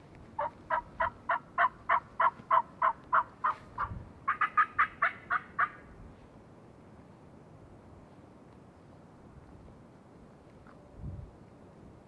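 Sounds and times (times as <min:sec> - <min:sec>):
wild turkey yelps: 0:00.4 - 0:05.8.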